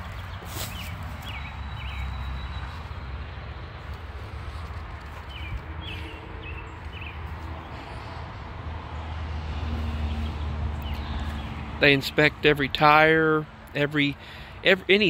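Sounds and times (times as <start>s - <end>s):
bird chirps: 0.0s - 2.9s
footsteps crunching dry leaves: 0.0s - 8.2s.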